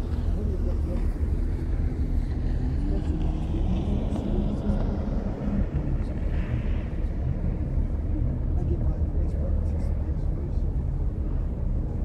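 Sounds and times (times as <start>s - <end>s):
ferry engines rumbling: 0.0s - 12.0s.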